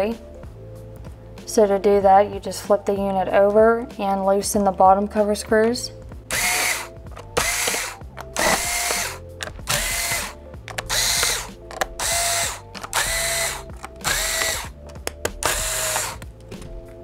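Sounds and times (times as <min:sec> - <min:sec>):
electric screwdriver whine: 0:06.3 - 0:14.8, 0:15.4 - 0:16.2.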